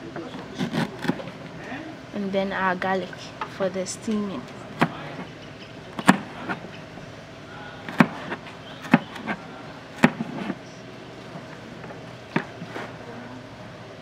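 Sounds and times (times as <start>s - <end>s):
knife chopping on plastic board: 4.8s - 5.1s, 6.0s - 6.6s, 7.9s - 9.4s, 10.0s - 10.6s.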